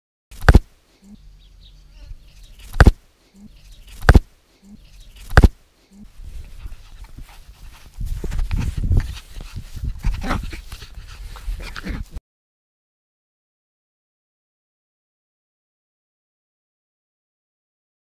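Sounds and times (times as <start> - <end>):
puppy snuffling close to microphone: 3.4 - 12.2.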